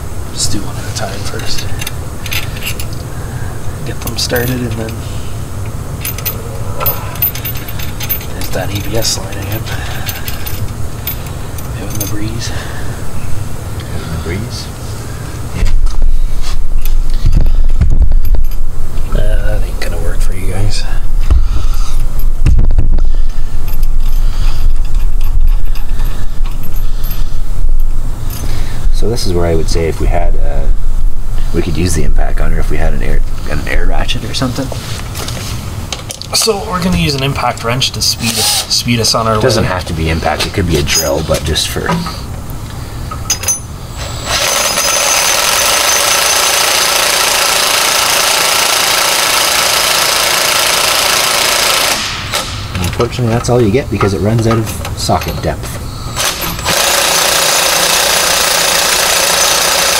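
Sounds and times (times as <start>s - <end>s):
metal hardware clinking: 1.2s - 3.0s, 3.9s - 5.0s, 5.6s - 12.6s, 23.3s - 28.5s, 40.4s - 42.3s, 43.1s - 46.5s, 52.2s - 57.0s
impact wrench hammering: 43.1s - 52.8s, 56.1s - 59.9s.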